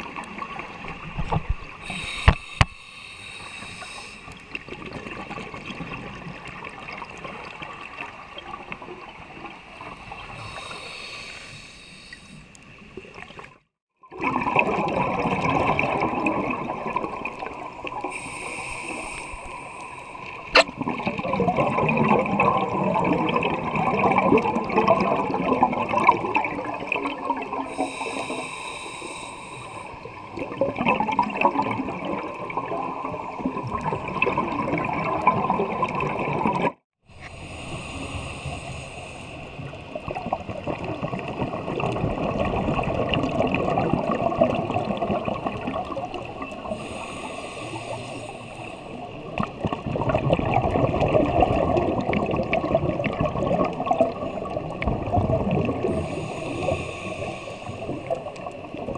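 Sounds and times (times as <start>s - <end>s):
regulator inhale hiss: 1.8s - 4.6s, 10.0s - 12.6s, 17.9s - 20.6s, 27.7s - 30.2s, 37.1s - 39.8s, 46.6s - 49.2s, 55.7s - 58.4s.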